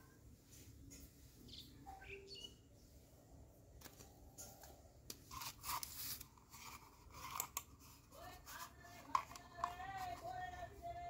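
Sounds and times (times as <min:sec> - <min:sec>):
plastic packaging rustling: 0:05.2 - 0:11.0.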